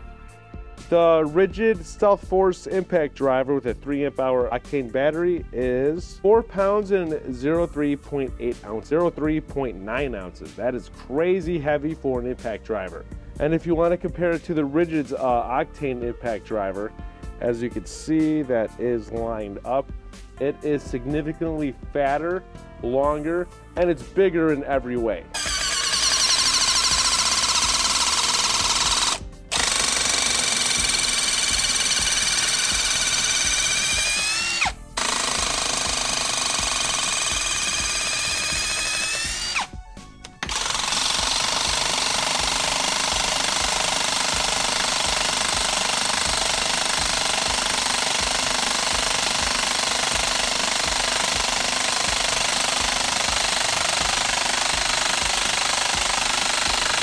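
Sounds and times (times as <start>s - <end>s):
impact driver whining: 25.3s - 57.0s.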